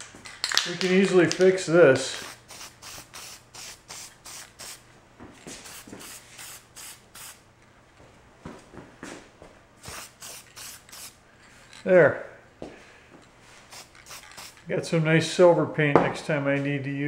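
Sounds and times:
spray paint can hissing: 2.0s - 4.8s, 5.6s - 7.4s, 9.8s - 11.2s, 13.7s - 14.7s.

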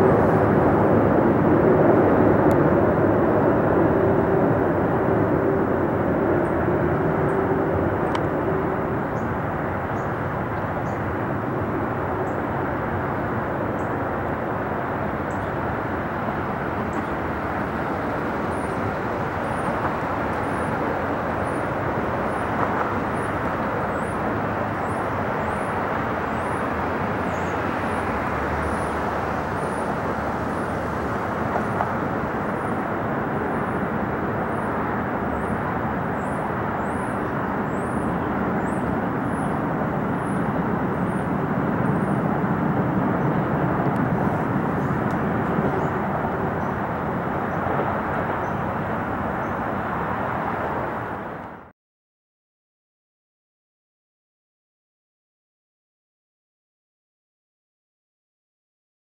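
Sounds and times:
jet engines roaring overhead: 0.0s - 51.7s.

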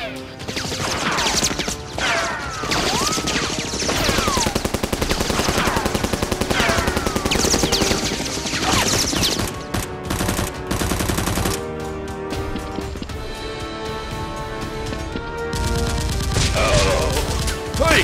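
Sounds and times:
machine-gun fire: 2.6s - 11.6s, 15.5s - 18.0s.

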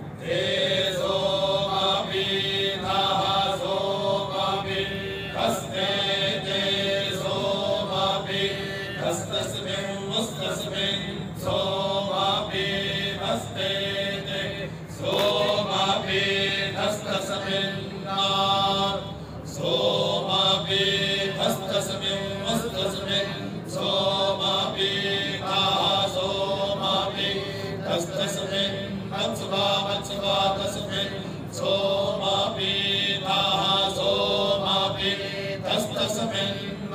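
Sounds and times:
men chanting in unison: 0.2s - 36.9s.

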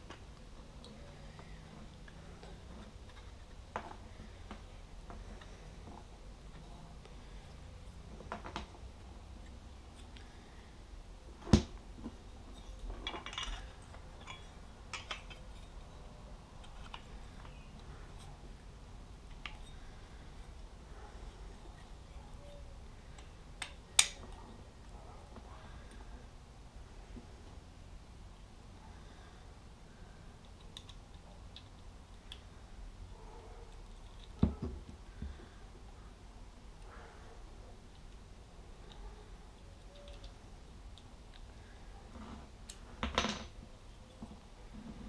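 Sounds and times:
plastic parts clicking: 30.4s - 32.5s, 39.6s - 40.4s.

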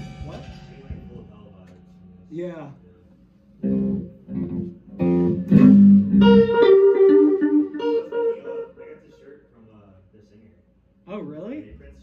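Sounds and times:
electric guitar: 3.6s - 9.2s.

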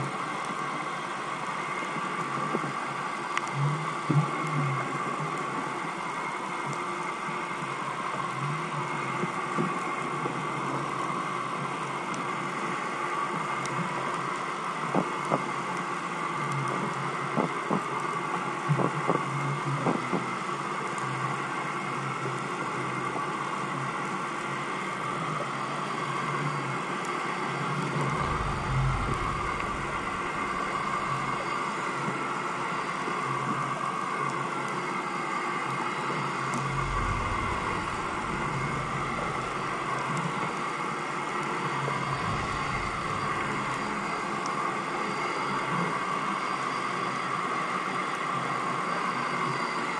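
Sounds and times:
boat engine hum underwater: 0.0s - 49.9s
low rumbles: 27.9s - 31.8s, 36.5s - 40.7s, 41.8s - 44.5s.

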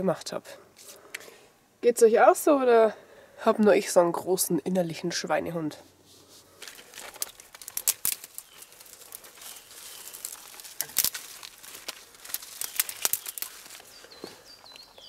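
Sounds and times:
dry leaves rustling: 6.0s - 15.0s
twigs snapping: 6.5s - 15.0s
small bird chirping: 8.3s - 10.8s, 12.3s - 15.0s.

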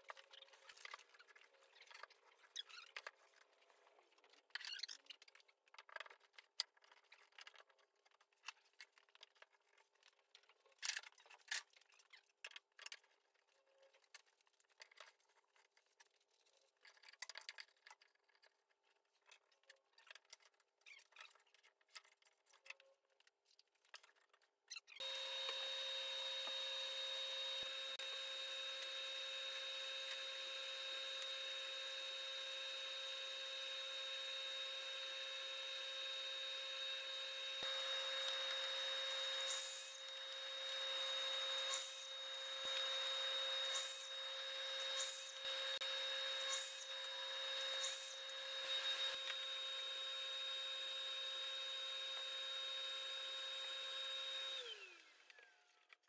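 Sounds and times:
workshop machine whining: 25.0s - 55.7s.

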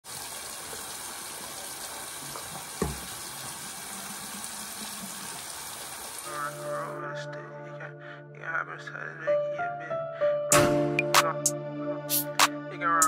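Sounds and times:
tap running into sink: 2.2s - 3.6s
knock: 2.8s - 3.1s.

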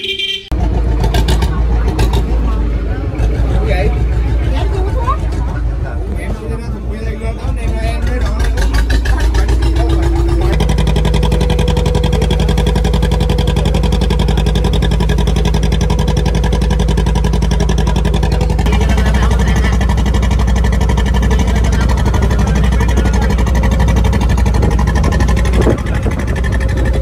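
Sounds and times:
boat engine running: 0.5s - 27.0s.

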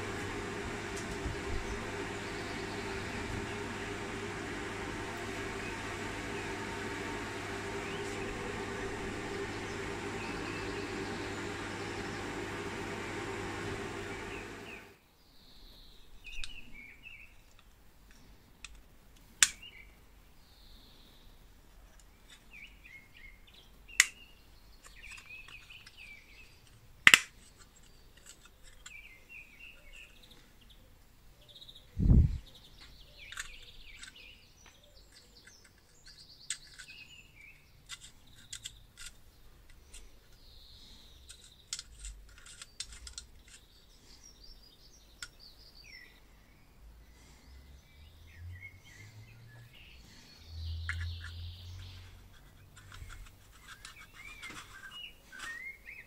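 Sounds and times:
birds chirping faintly: 0.0s - 18.7s, 19.5s - 56.0s
lamp parts clicking and tapping: 26.6s - 29.0s.

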